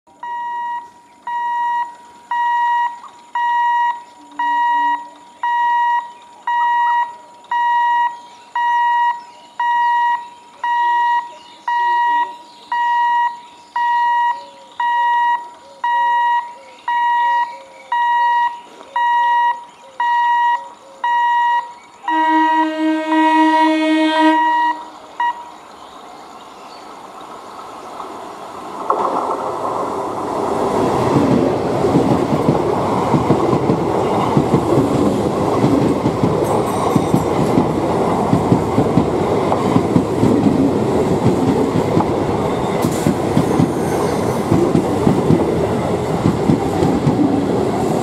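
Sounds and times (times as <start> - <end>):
level-crossing hooter beeping: 0.1 - 25.6.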